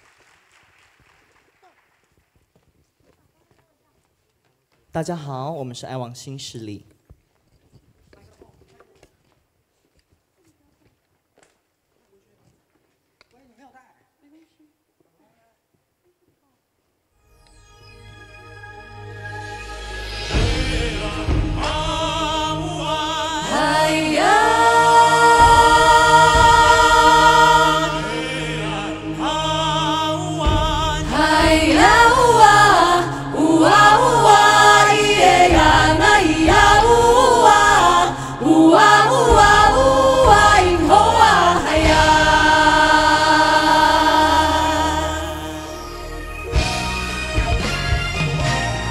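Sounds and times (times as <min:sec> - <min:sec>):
vocal group singing: 0:19.1 - 0:47.0.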